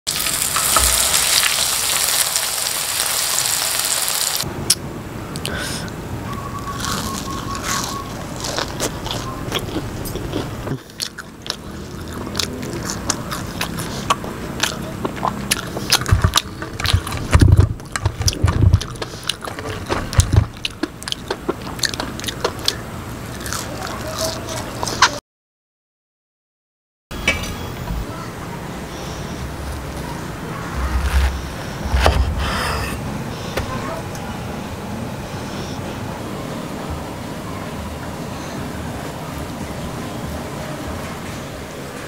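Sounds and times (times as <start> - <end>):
crunching and chewing: 6.6 - 25.2.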